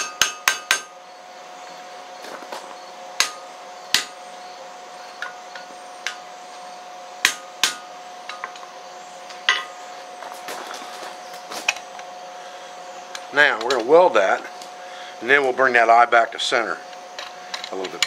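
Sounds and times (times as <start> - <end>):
hammer striking steel on anvil: 0.0 - 1.0, 3.2 - 4.2, 7.2 - 8.6.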